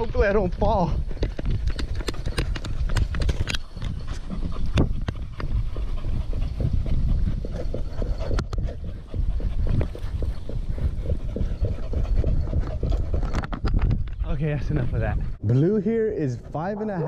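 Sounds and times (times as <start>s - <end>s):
dog panting: 1.1s - 13.5s.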